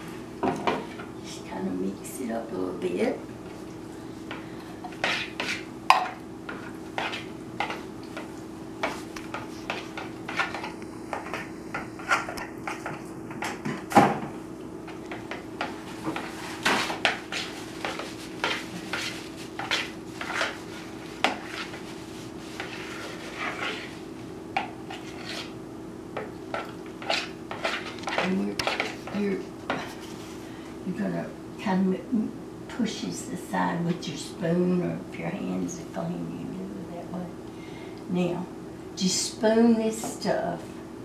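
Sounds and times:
spoon scraping plastic bowl: 4.9 - 7.8, 15.8 - 24.0, 24.6 - 25.6, 26.6 - 30.2.

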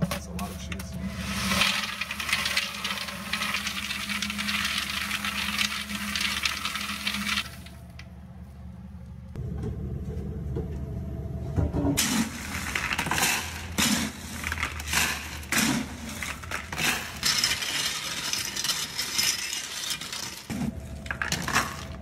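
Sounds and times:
popcorn rattling in metal kettle: 1.0 - 7.7, 12.0 - 22.0
steady hum: 7.0 - 17.4.

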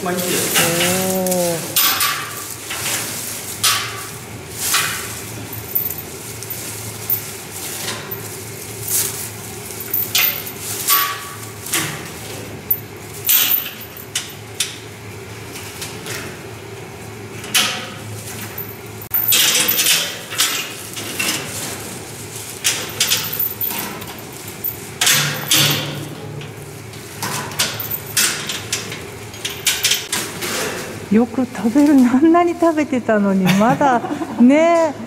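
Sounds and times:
leafy branches rustling: 0.0 - 12.3, 20.7 - 22.9
wire mesh rattling and clinking: 0.2 - 8.3, 8.9 - 11.4, 12.7 - 14.3, 18.4 - 21.6, 22.6 - 26.1.

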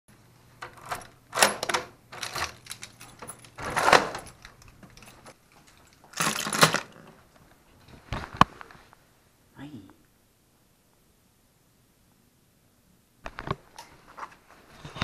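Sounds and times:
key in deadbolt: 0.6 - 7.0
keys jangling: 0.6 - 7.0
door opening: 0.6 - 7.3.

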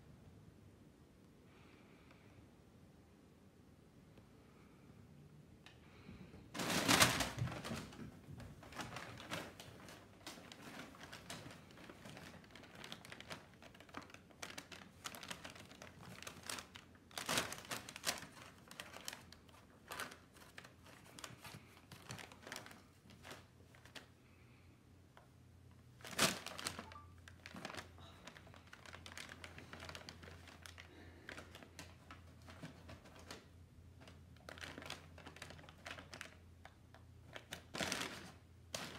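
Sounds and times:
paper crumpling: 6.6 - 24.1, 25.8 - 38.9
packing paper crinkling and rustling: 6.6 - 24.2, 25.8 - 38.9.

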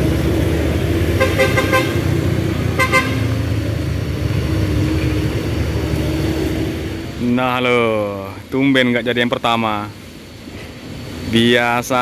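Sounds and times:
rumble of passing engines: 0.0 - 12.0
vehicle horn blasts: 1.2 - 3.4.

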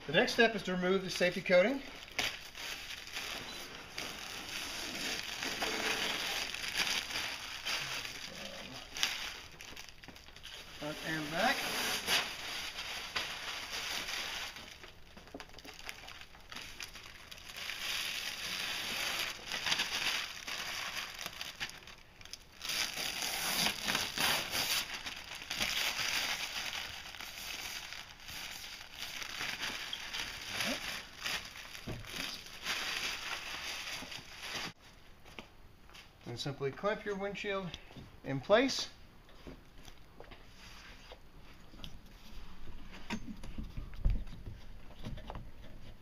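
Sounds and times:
plastic film crinkling: 1.0 - 34.8.

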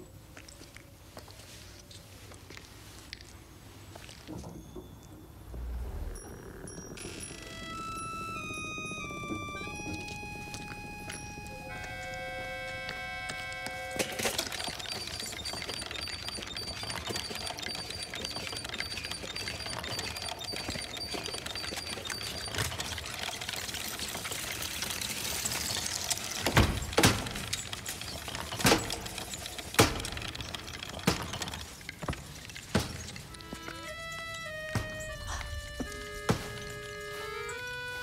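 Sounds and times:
toy tricycle mechanical ticking: 6.1 - 38.0.

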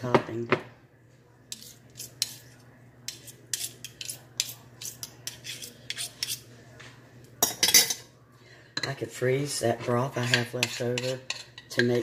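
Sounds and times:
metal spoons scraping ceramic bowl: 1.5 - 6.5, 9.6 - 12.0.

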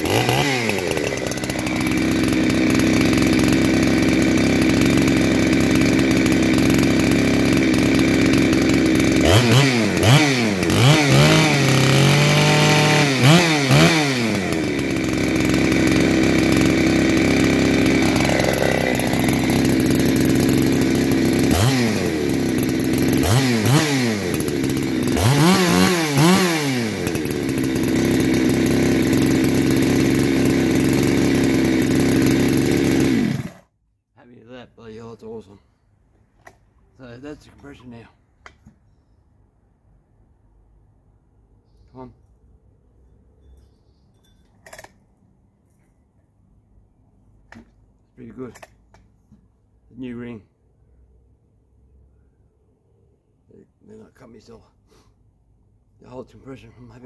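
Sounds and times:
chainsaw idling and revving: 0.0 - 33.7.

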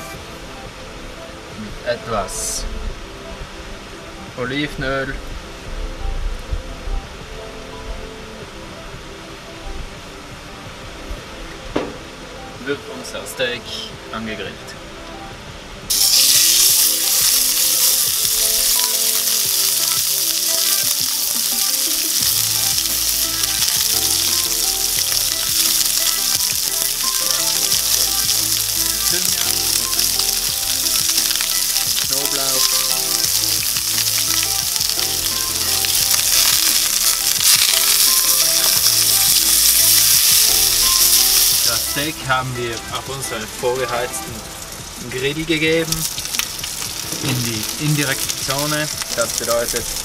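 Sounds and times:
steak sizzling in pan: 15.9 - 50.0.

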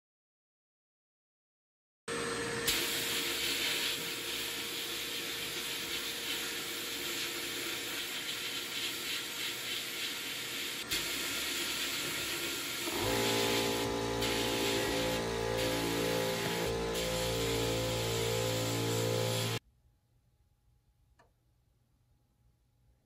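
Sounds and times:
sandblast gun hissing: 2.7 - 19.6
music: 13.2 - 19.6.

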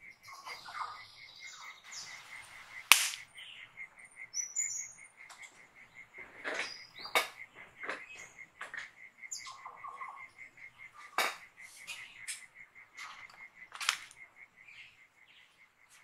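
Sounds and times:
high bird chirps: 0.0 - 16.0
insect trill: 0.0 - 16.0
sharp crack: 2.5 - 3.4, 11.2 - 11.6, 13.1 - 14.4.

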